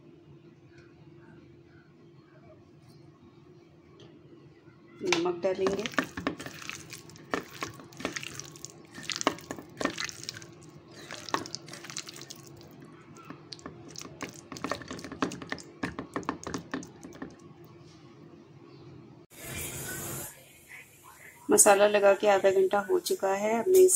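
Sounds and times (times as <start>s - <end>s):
hand squelching marinade in bowl: 5.6s - 17.5s.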